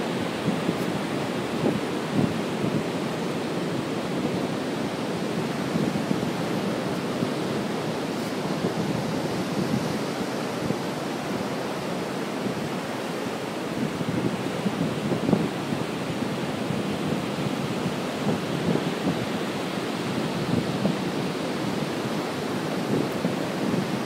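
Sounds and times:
wind buffeting microphone: 0.0s - 24.0s.

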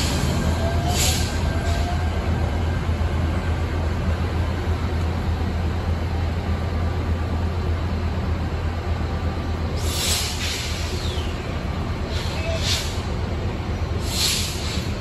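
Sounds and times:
light rail train rumble: 0.0s - 15.0s
brief hiss: 14.0s - 14.9s.

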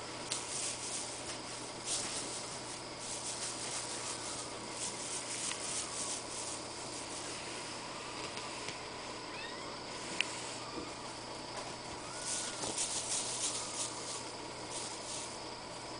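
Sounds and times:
kitten claws scratching fabric: 12.3s - 15.3s.

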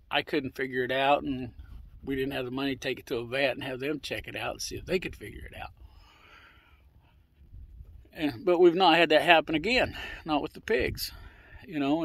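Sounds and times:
faint breath: 5.8s - 7.6s, 9.9s - 10.3s, 11.1s - 11.7s.

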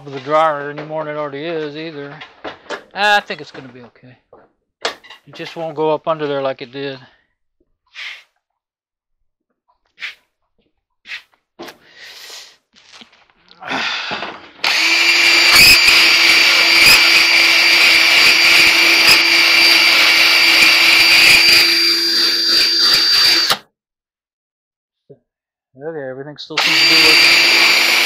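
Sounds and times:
cordless drill scraping metal: 14.1s - 23.6s, 26.6s - 28.0s.

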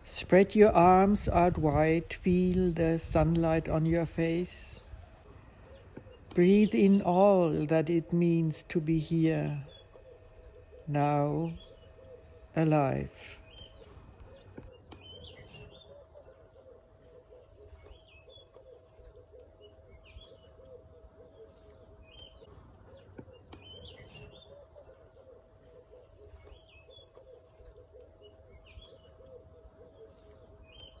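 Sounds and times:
bird chirping: 0.0s - 31.0s
faint low background noise: 0.0s - 31.0s.

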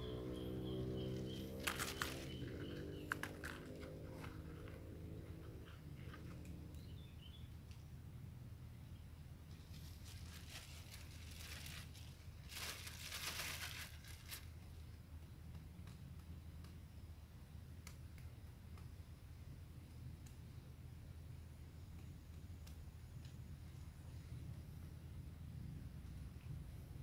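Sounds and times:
faint low hum: 0.0s - 27.0s
plastic bag crinkling: 9.7s - 14.6s.

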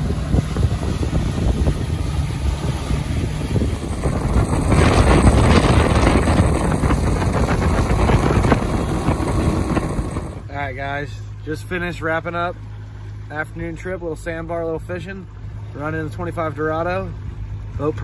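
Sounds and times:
wind buffeting microphone: 0.0s - 10.5s
outboard motor at speed: 0.0s - 18.0s
rush of boat wake: 0.0s - 18.0s.

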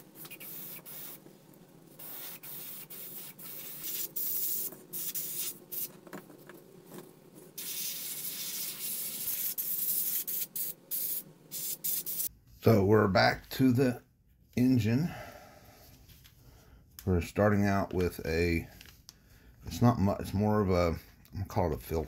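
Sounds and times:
airbrush spraying hiss: 0.0s - 1.3s, 1.9s - 6.0s, 7.6s - 12.3s.

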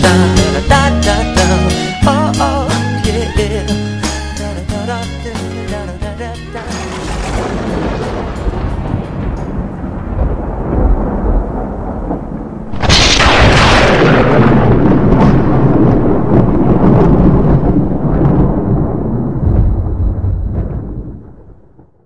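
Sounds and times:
loud thunderclap: 6.7s - 22.0s
low thunder rumbling: 6.7s - 22.0s.

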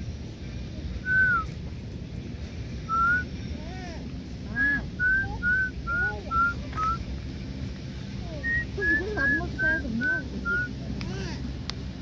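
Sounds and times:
low murmur: 0.0s - 12.0s
steady low rumble: 0.0s - 12.0s.

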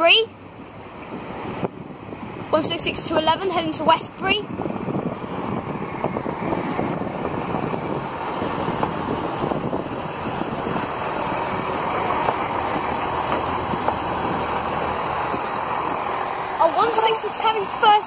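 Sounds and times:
diesel train rumbling past: 0.0s - 18.0s
train wheels on rails: 4.7s - 18.0s.

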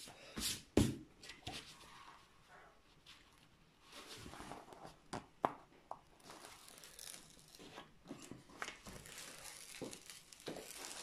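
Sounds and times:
paper rustling and crinkling: 6.2s - 11.0s.

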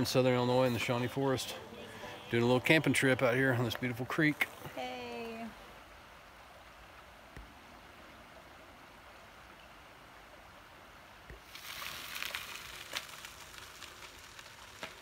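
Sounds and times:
creek rushing: 0.0s - 15.0s
crackling hiss with clicks: 11.2s - 15.0s.

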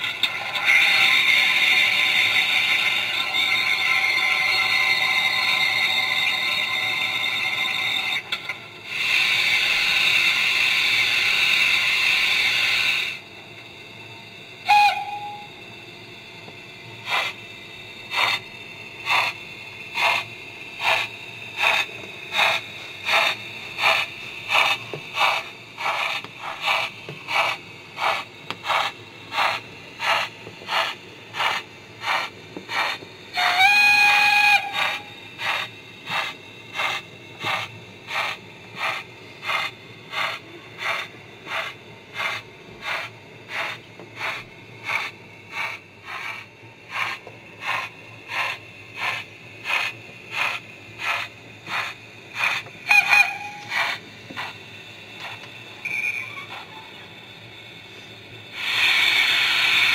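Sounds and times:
steam locomotive exhaust chuffs: 0.0s - 59.9s
steam whistle: 0.5s - 8.3s, 14.6s - 15.6s, 33.3s - 35.7s, 52.8s - 54.0s.

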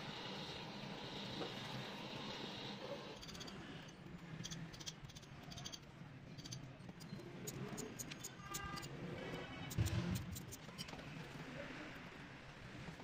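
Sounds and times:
short high-pitched squeaks: 6.4s - 11.0s.

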